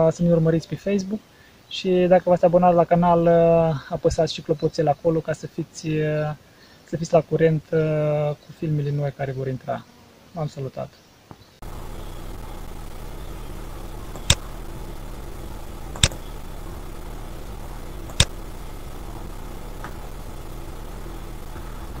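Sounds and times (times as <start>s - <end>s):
steady hiss with low hum: 0.0s - 22.0s
computer mouse clicks: 14.2s - 14.4s, 16.0s - 16.2s, 18.0s - 18.3s.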